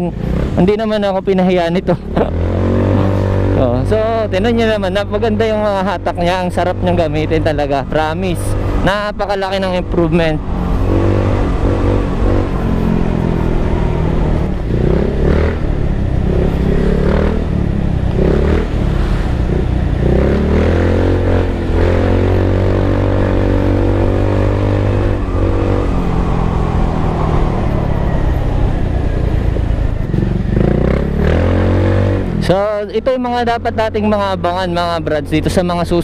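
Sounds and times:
scooter engine revving: 0:02.0 - 0:04.0, 0:10.4 - 0:32.5.

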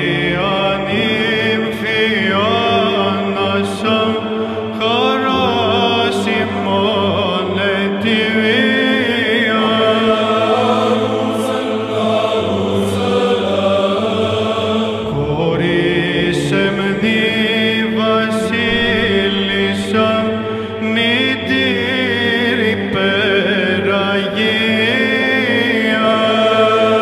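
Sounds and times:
choir singing a slow hymn: 0:00.0 - 0:27.0
low vocal drone: 0:00.0 - 0:27.0.

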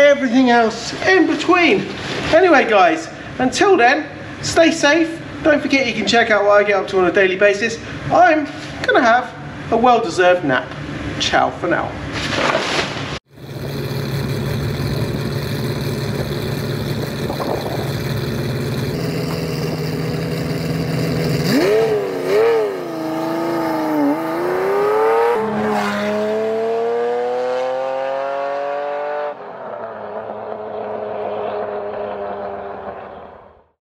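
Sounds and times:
car engine revving and accelerating: 0:13.3 - 0:33.6
quieter steady car engine: 0:13.3 - 0:33.6.

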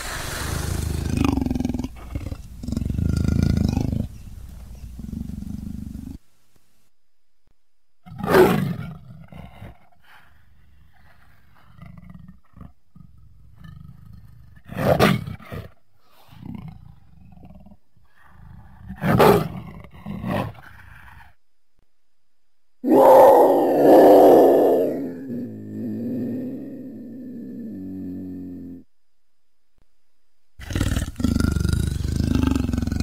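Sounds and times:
leopard grunting: 0:00.0 - 0:06.2, 0:30.6 - 0:33.0
leopard roaring: 0:00.0 - 0:06.2, 0:22.8 - 0:28.8, 0:30.6 - 0:33.0.

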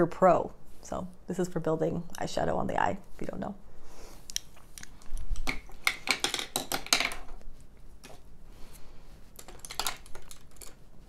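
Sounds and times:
makeup brushes clattering: 0:05.3 - 0:07.4, 0:09.3 - 0:10.9.

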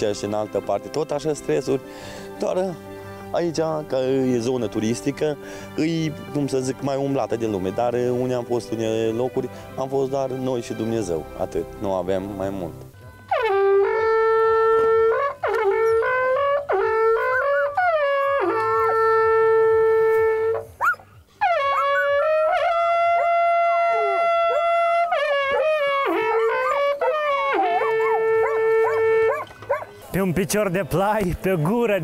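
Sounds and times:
horn playing long notes: 0:12.4 - 0:20.8, 0:21.4 - 0:29.5.

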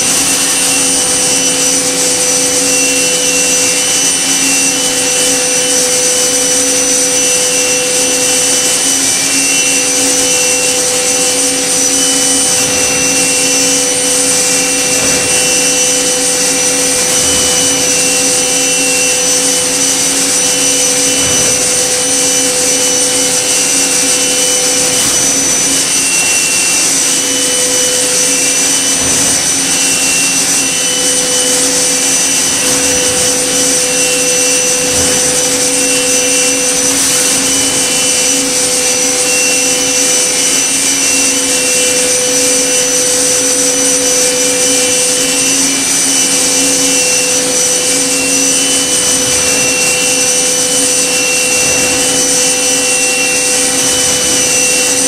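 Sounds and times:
machining spindle whine and hiss: 0:00.0 - 0:55.0.

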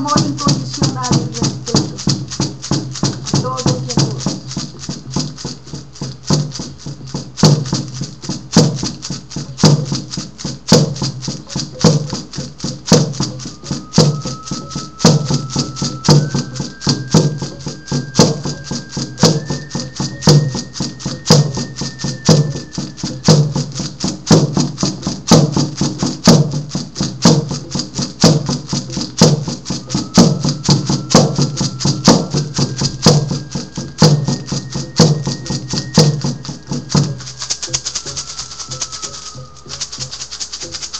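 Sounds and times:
frame drum beating: 0:00.0 - 0:40.9
thin high held tone: 0:13.1 - 0:25.2, 0:28.8 - 0:40.8.

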